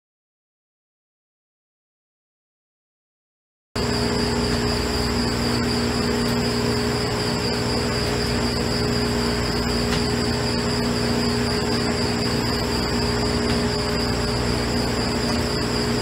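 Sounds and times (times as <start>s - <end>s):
high-pitched machine whine: 3.8s - 16.0s
machinery humming: 3.8s - 16.0s.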